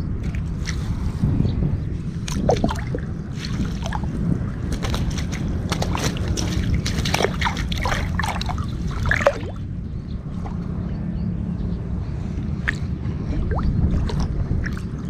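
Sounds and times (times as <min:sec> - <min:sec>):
water sloshing around wader: 0:00.1 - 0:11.1, 0:12.0 - 0:15.0
water splashing and dripping: 0:02.2 - 0:09.8, 0:12.5 - 0:15.0.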